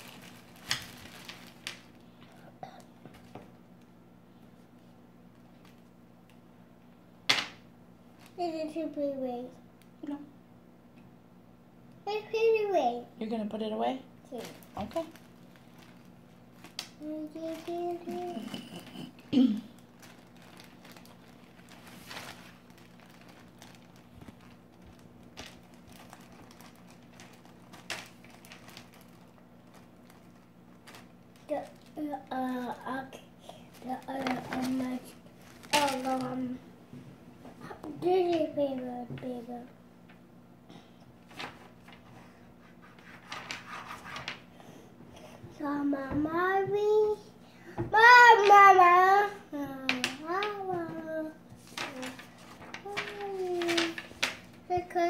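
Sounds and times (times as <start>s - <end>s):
crayons shifting in bag: 0.0s - 2.0s, 19.6s - 32.1s, 33.7s - 36.6s, 49.9s - 54.6s
plastic bag crinkling: 0.0s - 2.0s, 14.3s - 18.8s, 19.5s - 32.7s, 33.5s - 36.6s, 51.6s - 54.7s.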